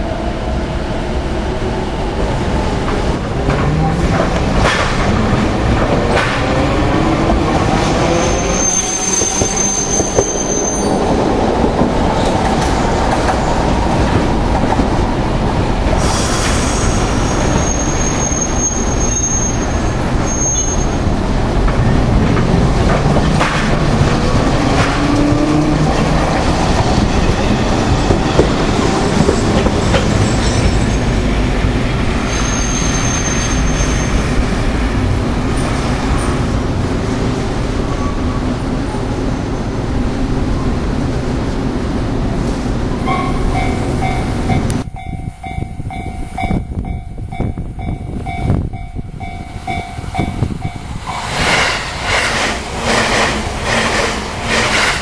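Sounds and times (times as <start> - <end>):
wheels rumbling on rails: 0.0 - 55.0
steel wheels squealing on curves: 7.8 - 11.2, 16.0 - 21.1, 32.2 - 34.5.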